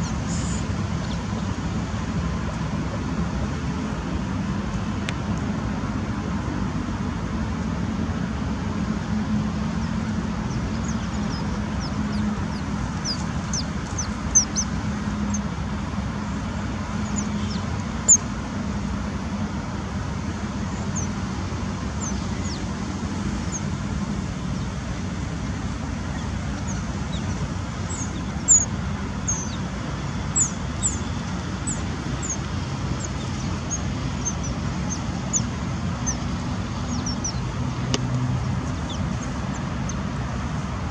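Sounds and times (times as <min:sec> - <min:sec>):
low rumble of traffic: 0:00.0 - 0:40.9
otters chirping: 0:09.7 - 0:18.3, 0:20.6 - 0:23.9, 0:25.9 - 0:40.1.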